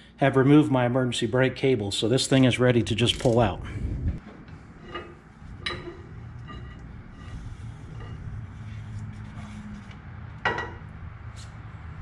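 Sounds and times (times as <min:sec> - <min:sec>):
steady low rumble: 0:02.6 - 0:09.2
metal shaft clinking and scraping: 0:04.8 - 0:08.5.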